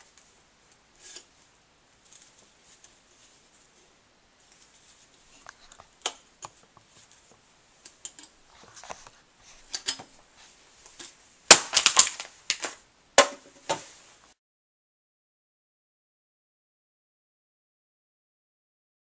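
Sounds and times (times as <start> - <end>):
can loud sharp crackles: 10.9 - 13.9.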